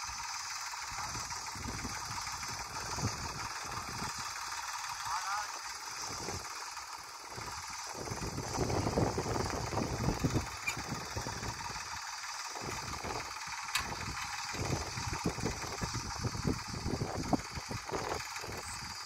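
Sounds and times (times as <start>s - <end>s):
tractor diesel engine running: 0.0s - 19.0s
low rumbling: 7.3s - 11.9s, 12.6s - 19.0s.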